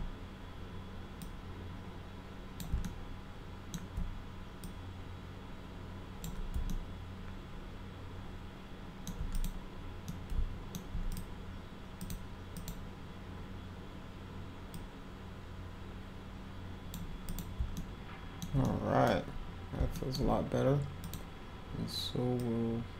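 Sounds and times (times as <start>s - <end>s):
steady low hum: 0.0s - 22.9s
computer mouse and keyboard clicks: 2.6s - 3.0s, 6.2s - 6.8s, 9.0s - 11.3s, 12.0s - 12.8s, 16.9s - 18.8s, 21.0s - 21.3s.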